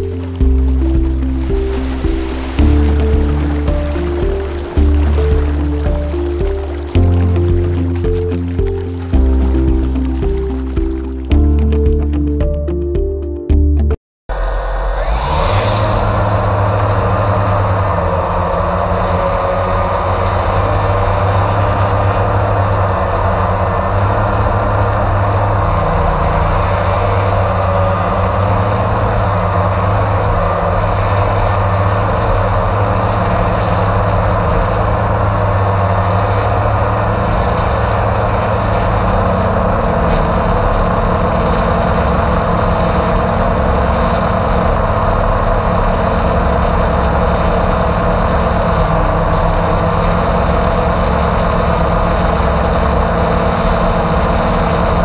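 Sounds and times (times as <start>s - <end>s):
drone motors and propellers: 14.3s - 55.0s.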